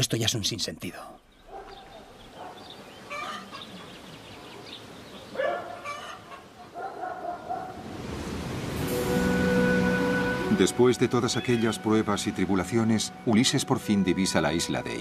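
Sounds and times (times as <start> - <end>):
poultry calling: 1.4 - 7.7.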